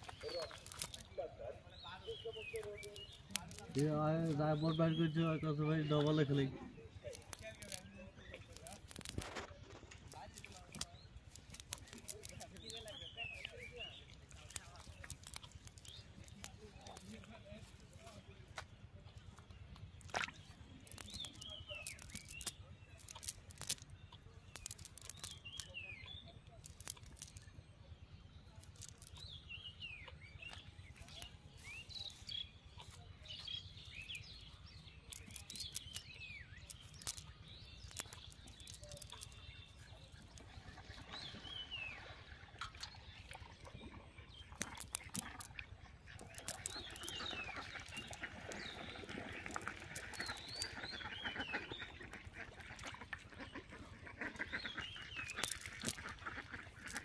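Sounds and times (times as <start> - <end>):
birds chirping: 0.0 - 57.0
cast net clicks: 2.4 - 18.2, 19.7 - 25.8, 26.5 - 27.6, 35.0 - 40.6, 42.6 - 57.0
ducks quacking: 43.9 - 57.0.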